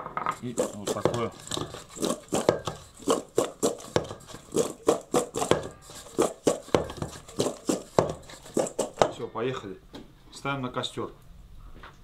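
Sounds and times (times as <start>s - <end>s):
utensils knocking against a pot: 0.3s - 9.2s.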